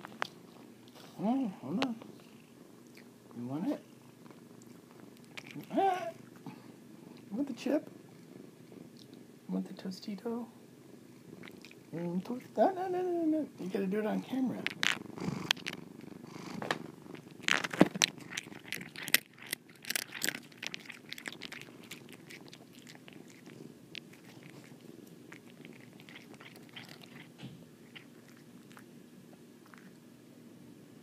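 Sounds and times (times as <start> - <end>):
cat crunching chip: 4.6 - 5.7, 14.4 - 28.9, 29.6 - 30.0
cat chewing clicks: 17.1 - 28.8.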